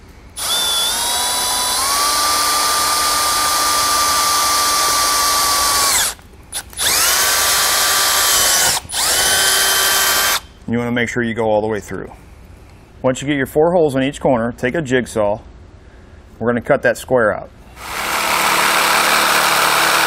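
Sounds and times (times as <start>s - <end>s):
cordless drill motor whine: 0.4s - 10.5s, 17.8s - 20.0s.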